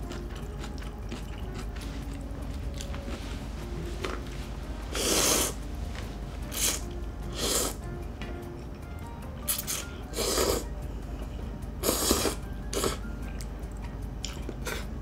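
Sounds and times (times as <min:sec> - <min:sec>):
soft chewing: 0:00.0 - 0:05.5, 0:09.4 - 0:15.0
noodles slurping: 0:04.9 - 0:05.6, 0:11.8 - 0:13.0.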